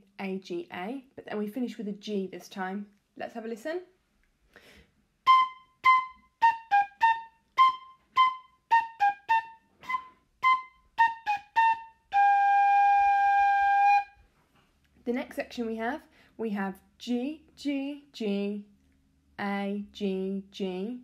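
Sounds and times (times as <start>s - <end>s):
recorder playing: 5.2s - 14.2s.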